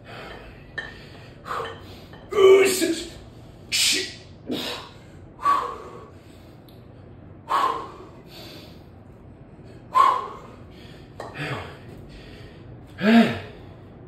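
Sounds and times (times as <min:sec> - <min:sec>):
man breathing sharply with effort: 0:04.5 - 0:09.0, 0:09.6 - 0:13.9.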